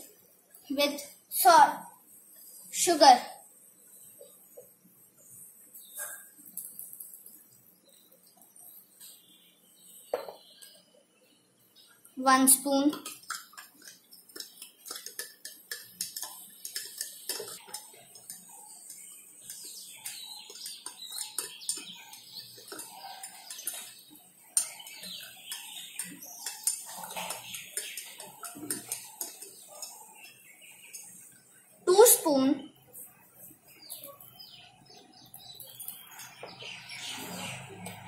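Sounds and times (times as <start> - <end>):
spoon stirring in a glass: 12.9 - 31.3.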